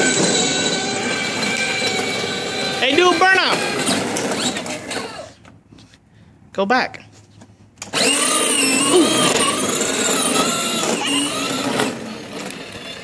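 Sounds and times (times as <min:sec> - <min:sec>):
toy car electric motor whining: 0:00.0 - 0:05.5, 0:07.8 - 0:13.0.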